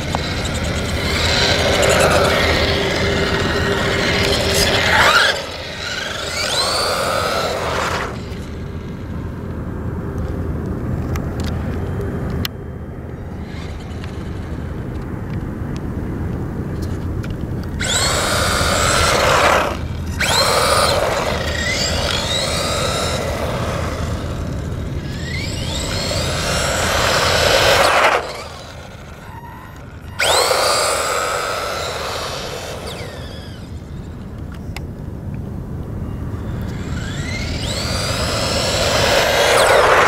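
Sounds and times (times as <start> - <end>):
electric toy truck motor whining: 0.0 - 9.1, 13.3 - 14.7, 17.6 - 34.8, 36.0 - 40.0.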